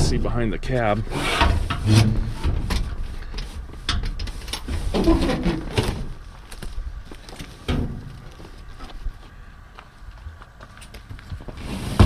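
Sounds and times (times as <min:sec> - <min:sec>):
seat springs rustling and rattling: 0:01.1 - 0:06.7.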